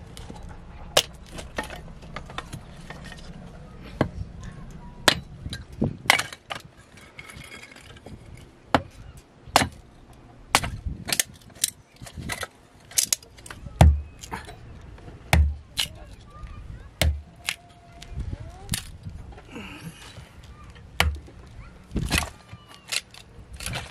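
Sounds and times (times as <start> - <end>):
hatchet chopping wood: 5.0 - 5.3, 8.7 - 9.8, 10.5 - 12.4, 13.8 - 14.3, 15.3 - 16.0, 17.0 - 17.6, 21.0 - 21.3.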